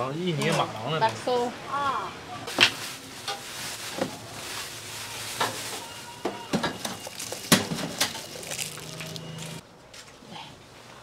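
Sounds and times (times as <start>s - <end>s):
plastic bag rustling: 2.5s - 9.6s.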